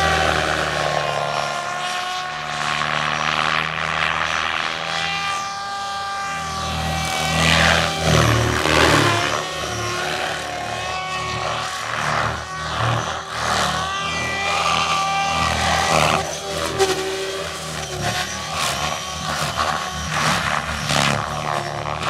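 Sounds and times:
electric motor whine: 0.0 - 22.0
rotor blades whooshing: 0.0 - 22.0.

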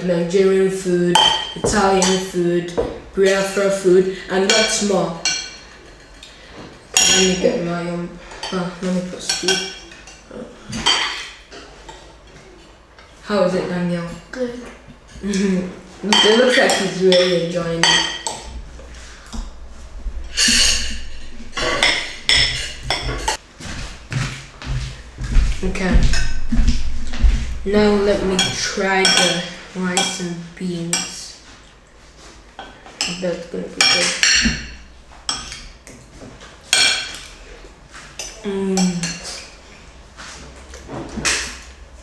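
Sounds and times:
metal spoons clinking on plates: 6.9 - 7.4, 20.3 - 23.4, 28.4 - 30.2.

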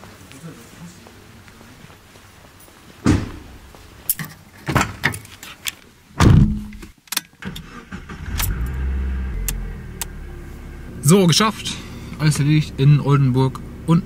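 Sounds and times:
car engine starting and idling: 7.4 - 14.0.

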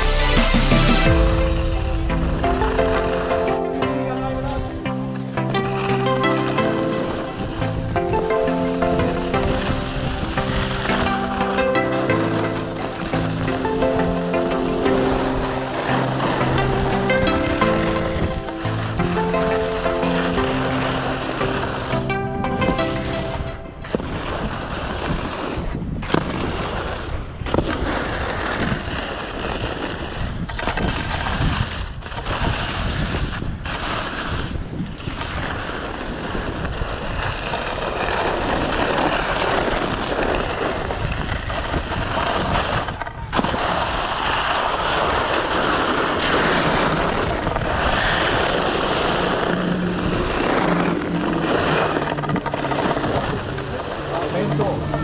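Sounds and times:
skis scraping over snow: 0.0 - 55.0
wind on microphone: 23.2 - 55.0.

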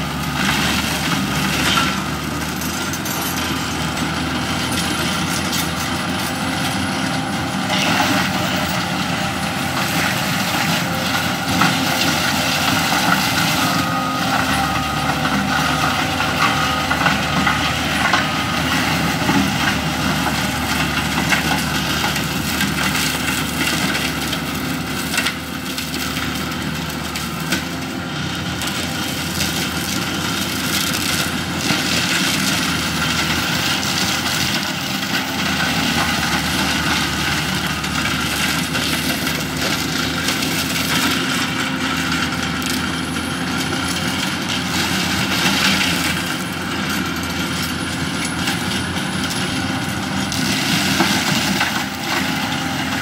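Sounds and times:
diesel engine running: 0.0 - 53.0
mulcher grinding brush: 0.0 - 53.0.

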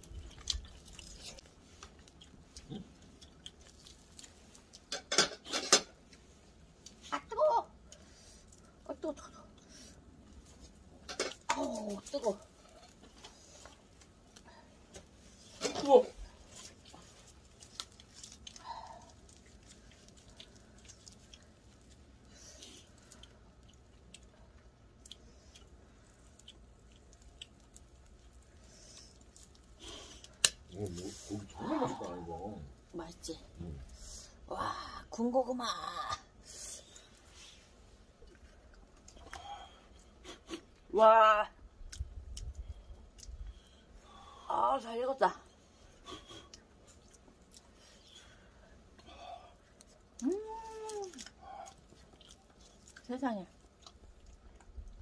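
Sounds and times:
small clicks and rustles of peeling: 0.0 - 7.2, 7.8 - 34.3, 45.8 - 55.0.

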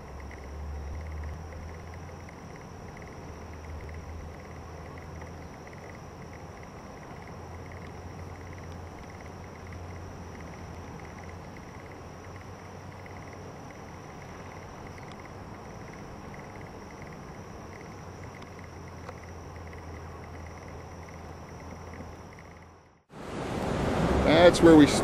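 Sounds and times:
low background rumble: 0.0 - 23.1
insects chirping in pulses: 0.0 - 23.3.

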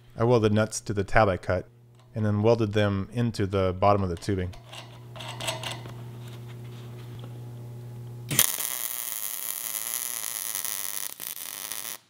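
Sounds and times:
steady low hum: 0.0 - 8.4
arc welder hissing: 8.3 - 12.0.

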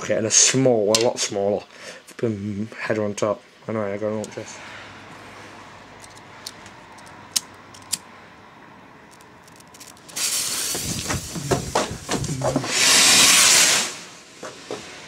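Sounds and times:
rocket motor igniting with rush: 9.4 - 14.2
fuse hissing: 9.5 - 15.0.

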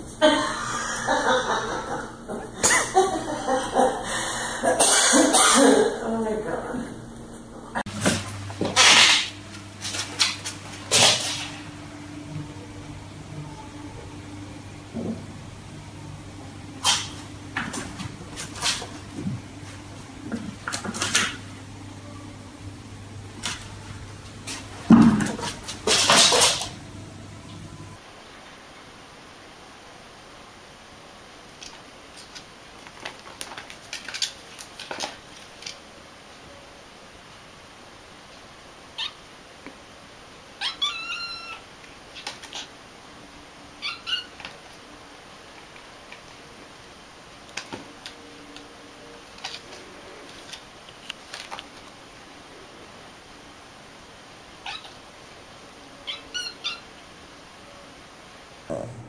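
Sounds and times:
steady low hum: 0.0 - 28.2, 58.5 - 59.0
cat meowing: 39.0 - 39.2, 40.6 - 41.6, 43.8 - 44.4, 54.6 - 55.0, 56.0 - 56.9.

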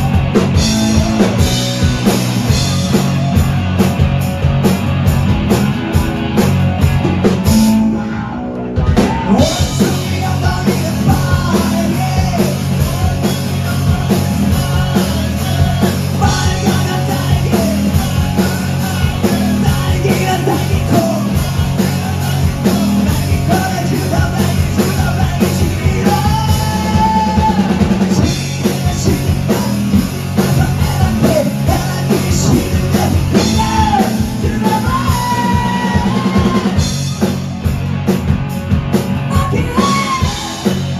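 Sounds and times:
drum kit: 0.0 - 40.9
electric guitars: 0.0 - 40.9
person singing: 7.5 - 37.0, 39.3 - 40.9.

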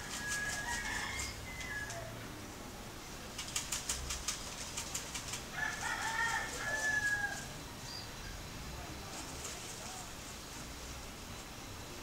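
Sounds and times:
bird scratching in seed: 0.0 - 1.9, 3.3 - 7.5, 9.1 - 10.4.

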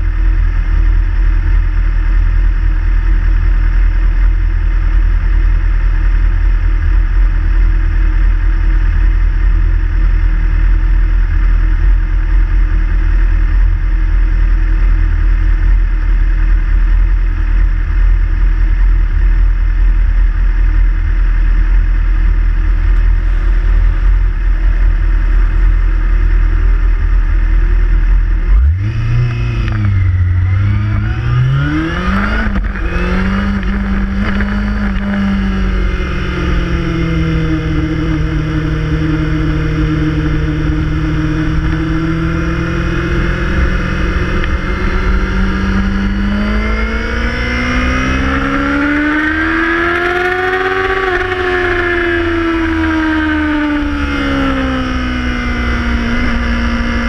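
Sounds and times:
motorcycle engines idling: 0.0 - 28.7, 29.5 - 47.1
motorcycle revving and pulling away: 22.2 - 57.0.

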